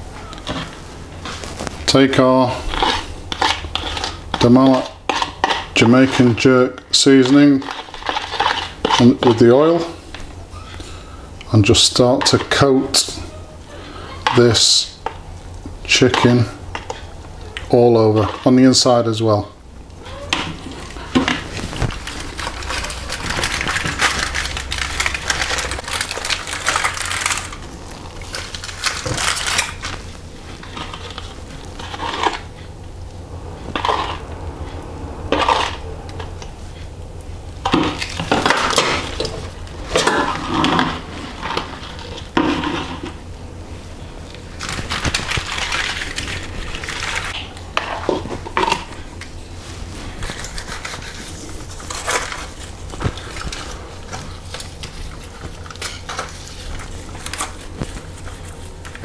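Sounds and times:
foil crinkling: 0.3s - 6.4s, 20.4s - 32.6s, 37.6s - 43.2s, 44.3s - 47.5s, 49.6s - 59.0s
metal spoon scraping bowl: 2.5s - 9.9s, 33.7s - 36.8s
low hum: 19.5s - 59.0s.

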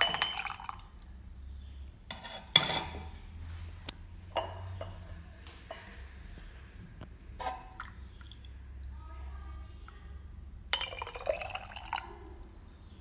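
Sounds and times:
liquid pouring into mug: 0.0s - 1.6s, 10.8s - 13.0s.

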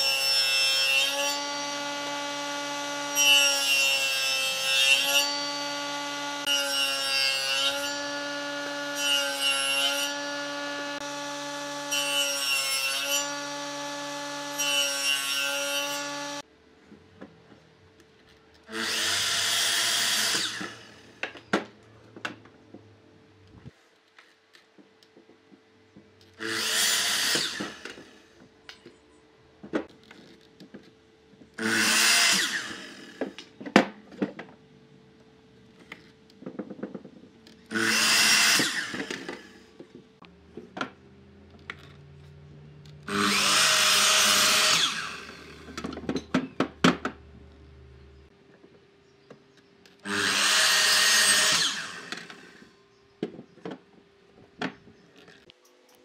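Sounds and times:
miter saw cutting wood: 0.0s - 16.4s, 18.7s - 21.2s, 26.4s - 28.3s, 31.6s - 33.4s, 37.7s - 39.8s, 43.0s - 45.9s, 50.0s - 52.8s.

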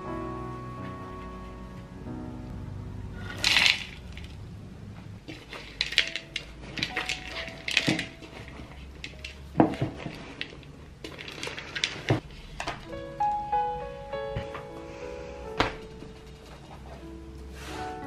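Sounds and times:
chocolate pieces rattling into bowl: 3.3s - 4.4s, 5.3s - 12.2s
hands kneading dough in wooden bowl: 3.3s - 13.0s.

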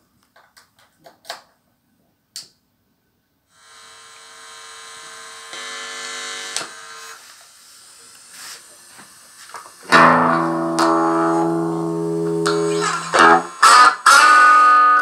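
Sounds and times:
amplifier mains hum: 3.6s - 7.2s, 8.7s - 15.0s.

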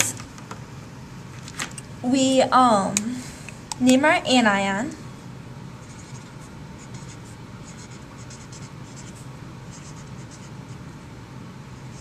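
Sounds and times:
low background hum: 0.0s - 12.0s
marker scratching on poster board: 5.8s - 10.8s.

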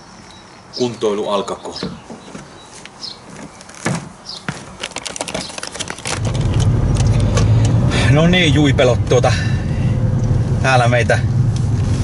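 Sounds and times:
bird chirping: 0.0s - 6.0s
handling clicks and rustles: 2.2s - 7.8s
car engine and road drone: 5.9s - 12.0s.

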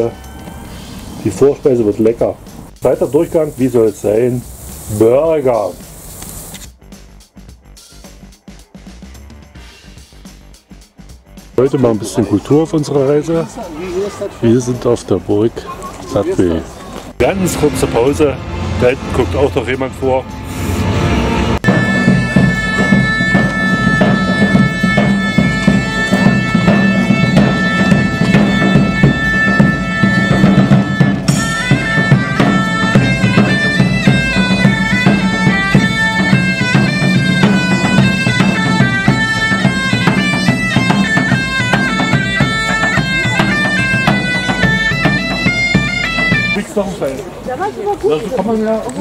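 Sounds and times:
bagpipes playing over a drone: 0.0s - 1.1s, 17.2s - 46.7s.

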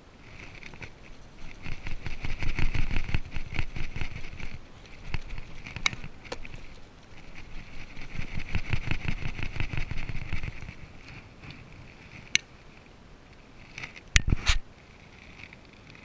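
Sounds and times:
cup shaking and rustling: 0.4s - 10.8s.

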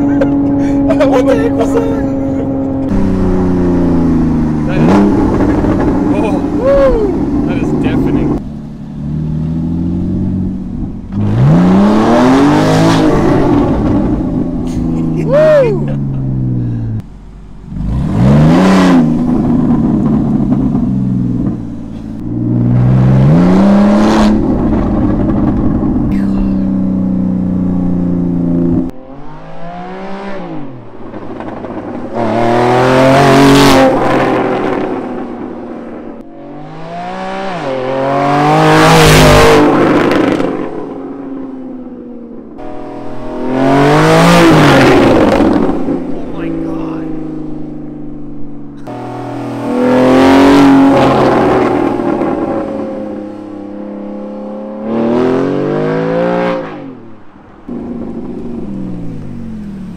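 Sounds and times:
sports car engine revving: 0.0s - 15.1s, 16.0s - 59.9s
car passing loudly: 42.6s - 48.1s, 48.8s - 59.9s.

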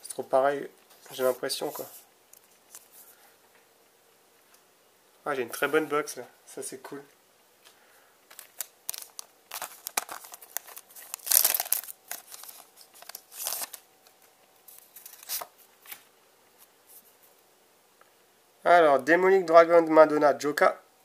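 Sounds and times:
foil pack crinkling and tearing: 8.3s - 13.8s
cards sliding and shuffling: 8.3s - 17.1s.

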